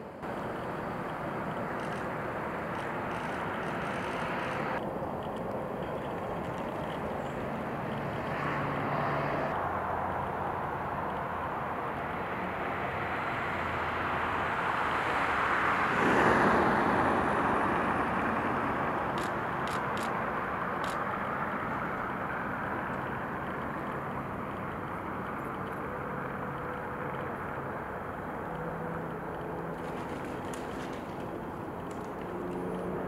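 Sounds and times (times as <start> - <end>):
car passing: 0.1 - 4.8, 5.6 - 25.2.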